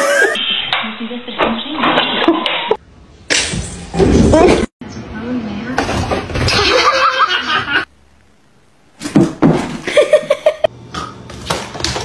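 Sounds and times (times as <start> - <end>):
people laughing: 6.5 - 7.9.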